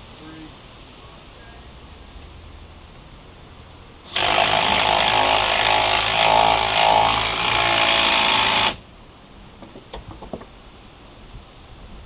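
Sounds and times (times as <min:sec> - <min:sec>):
power tool running: 0:04.1 - 0:08.8.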